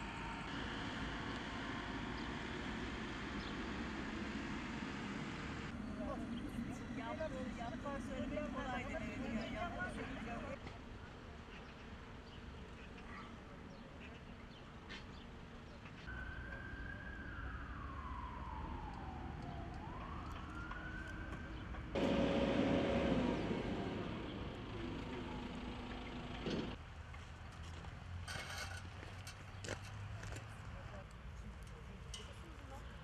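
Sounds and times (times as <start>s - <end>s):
siren wailing faintly: 16.1s - 25.6s.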